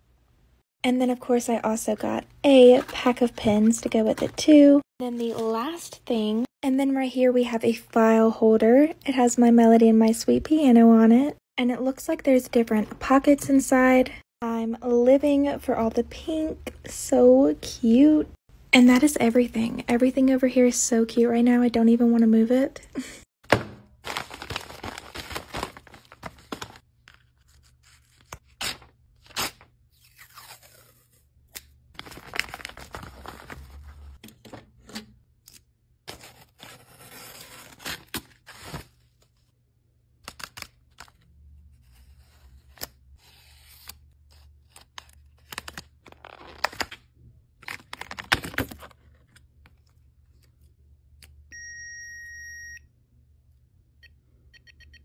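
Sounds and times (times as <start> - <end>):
plastic packaging crinkling: 24.0 - 27.3, 32.0 - 34.2.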